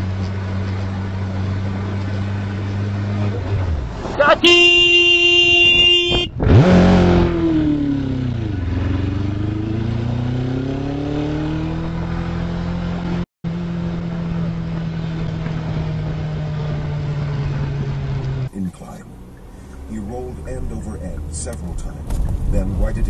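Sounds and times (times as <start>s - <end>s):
motorcycle engine revving: 0.0s - 23.0s
vehicle horn honk: 4.2s - 6.6s.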